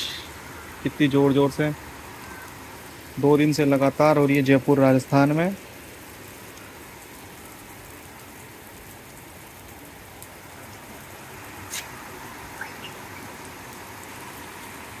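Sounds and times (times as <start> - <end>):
heavy rain on rooftop: 0.0 - 15.0.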